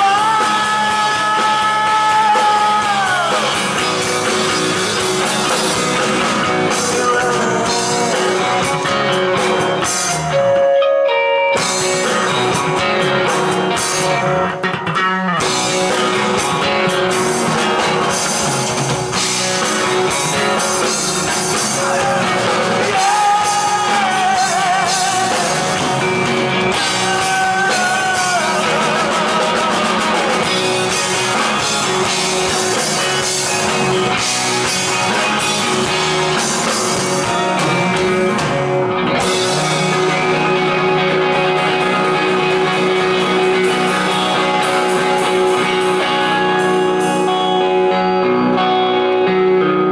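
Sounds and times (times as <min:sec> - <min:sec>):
person singing: 0:00.0 - 0:04.7, 0:05.5 - 0:12.4, 0:21.2 - 0:33.6, 0:39.2 - 0:49.9
live rock band playing: 0:00.0 - 0:49.9.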